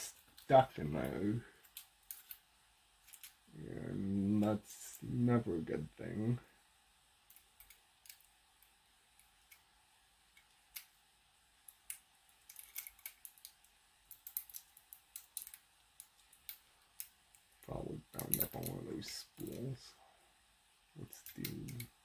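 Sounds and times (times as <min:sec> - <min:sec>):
small metallic clicks: 0:01.6 - 0:02.4, 0:03.0 - 0:03.4, 0:07.3 - 0:09.7, 0:10.3 - 0:11.0, 0:11.6 - 0:17.5, 0:18.2 - 0:18.8, 0:21.1 - 0:22.0.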